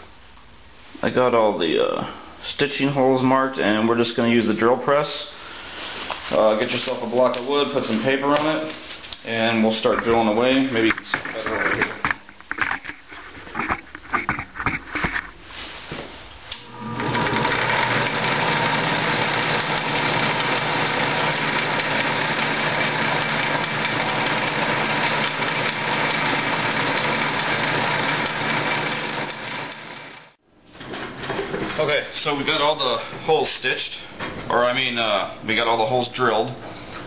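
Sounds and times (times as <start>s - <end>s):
drill press motor running: 16.6s - 30.4s.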